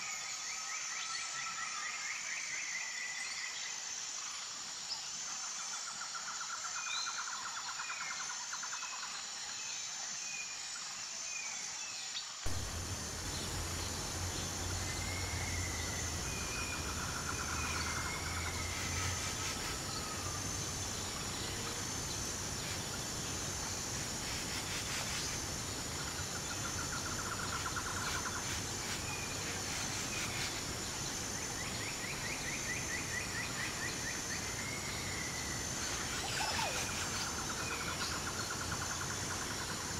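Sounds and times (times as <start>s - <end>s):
high insect drone: 0.0s - 39.9s
birds chirping and trilling: 12.5s - 39.9s.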